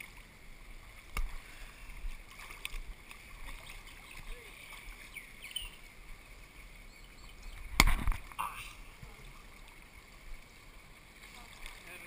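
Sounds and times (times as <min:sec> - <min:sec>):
pool water lapping: 0:00.0 - 0:12.0
water slap and splash: 0:01.0 - 0:01.5, 0:02.2 - 0:04.8, 0:07.6 - 0:08.6.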